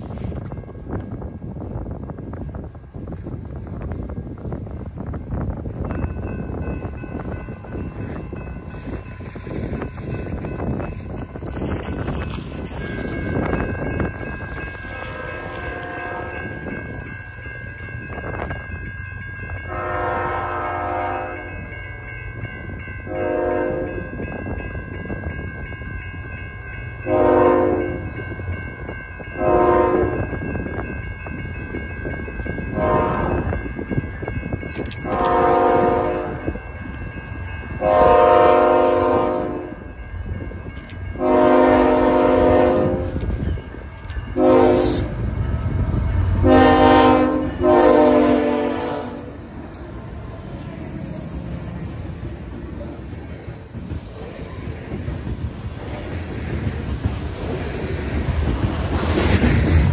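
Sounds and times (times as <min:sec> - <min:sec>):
train air horn blasts: 0:14.8 - 0:16.6, 0:19.7 - 0:21.5, 0:23.1 - 0:24.1, 0:27.1 - 0:28.0, 0:29.4 - 0:30.2, 0:32.7 - 0:33.5, 0:35.0 - 0:36.6, 0:37.8 - 0:39.8, 0:41.2 - 0:43.3, 0:44.4 - 0:45.2, 0:46.4 - 0:49.4.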